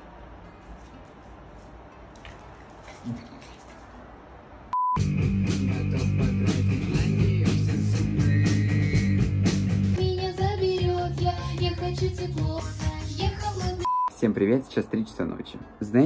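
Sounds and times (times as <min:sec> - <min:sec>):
brief beep: 0:04.7 - 0:05.1, 0:13.9 - 0:14.2
rock band playing: 0:05.0 - 0:10.0
person singing: 0:05.2 - 0:13.9.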